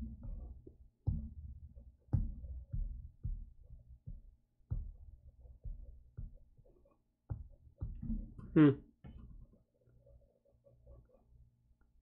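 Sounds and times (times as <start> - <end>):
soft low thumps: 0.0 - 6.6.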